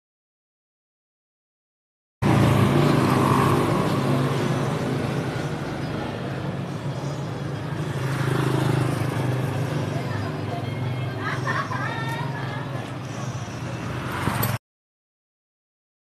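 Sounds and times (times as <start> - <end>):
hum of passing cars and motorcycles: 2.2 - 14.6.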